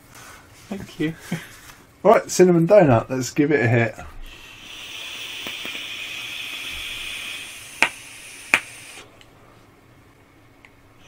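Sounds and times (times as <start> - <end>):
vape device hissing: 4.2 - 9.1.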